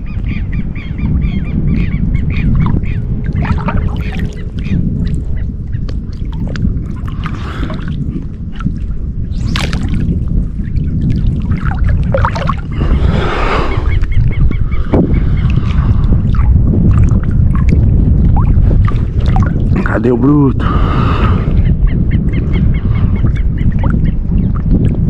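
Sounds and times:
birds calling: 0.0s - 6.0s, 12.5s - 16.0s, 21.4s - 24.6s
wind buffeting microphone: 0.0s - 25.0s
water lapping: 2.3s - 20.1s
rush of water: 2.6s - 4.8s, 5.9s - 20.1s.

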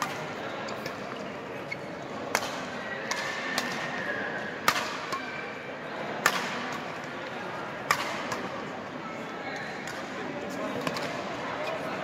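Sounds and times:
crowd murmur: 0.0s - 12.0s
racket hitting shuttlecock: 2.3s - 3.9s, 4.6s - 5.3s, 6.2s - 6.9s, 7.8s - 8.5s.

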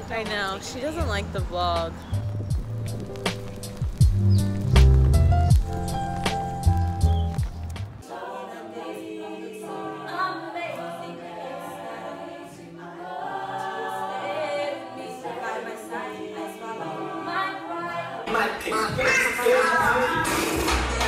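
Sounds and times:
a cappella group singing in harmony: 8.0s - 21.0s.

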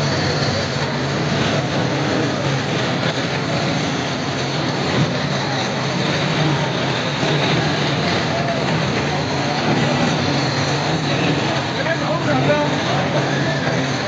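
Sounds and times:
large crowd din: 0.0s - 14.0s.

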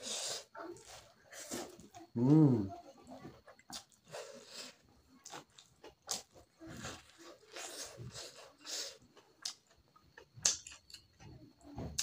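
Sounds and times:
man chewing and lip-smacking: 3.4s - 11.2s.

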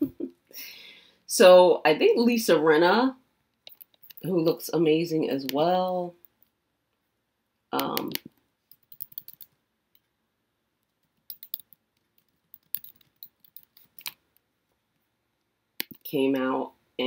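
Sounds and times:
computer keyboard typing: 7.8s - 9.5s, 11.0s - 14.2s, 15.8s - 16.0s.

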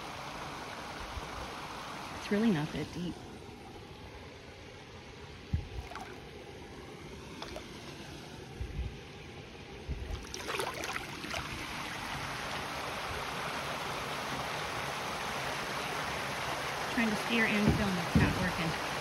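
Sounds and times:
stream running over rocks: 0.0s - 19.0s
low thumps: 5.5s - 6.0s, 17.6s - 18.7s
paddle splashing in water: 5.5s - 6.2s, 7.4s - 7.7s, 10.1s - 11.8s.

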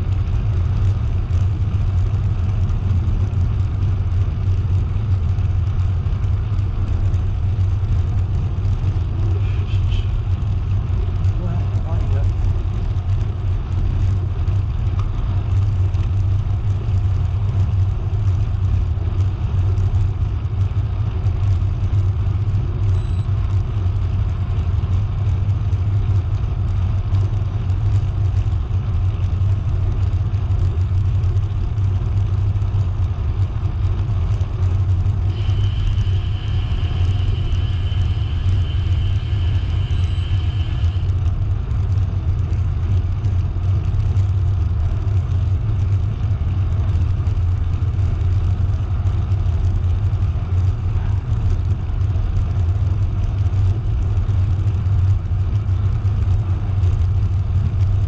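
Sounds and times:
thin high whine: 22.8s - 23.4s, 35.3s - 41.3s
bicycle tyre noise: 32.8s - 58.0s.

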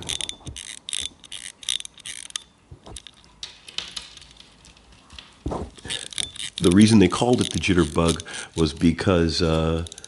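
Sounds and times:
stopwatch winding ratchet clicks: 0.0s - 3.2s, 5.9s - 10.0s.

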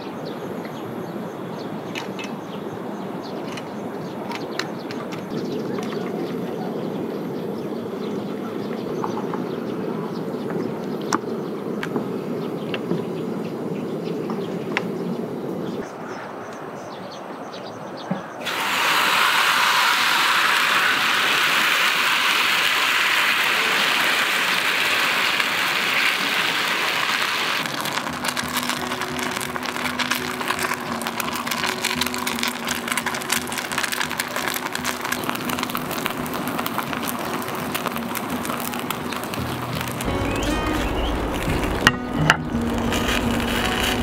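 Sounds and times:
batter sizzling in hot pan: 18.4s - 44.0s.

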